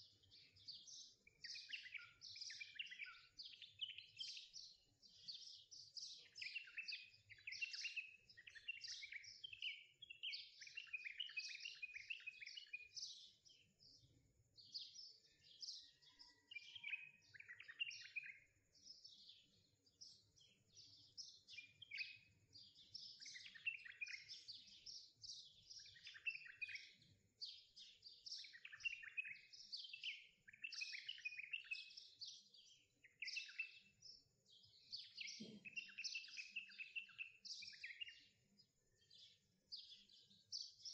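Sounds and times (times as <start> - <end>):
songbirds chirping: 0.0 - 40.9.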